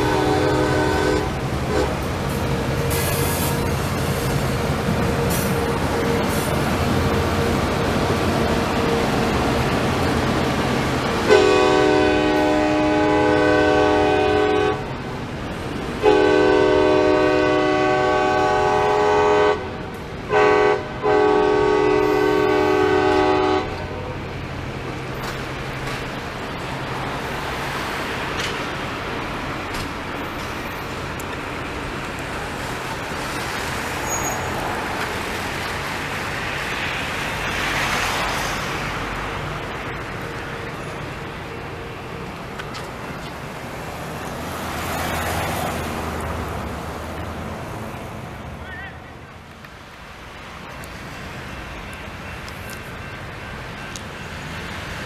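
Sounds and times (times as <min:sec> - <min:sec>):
train horn blowing: 0:00.0 - 0:02.0, 0:11.2 - 0:14.9, 0:16.0 - 0:24.0
train cars rumbling past: 0:00.0 - 0:55.0.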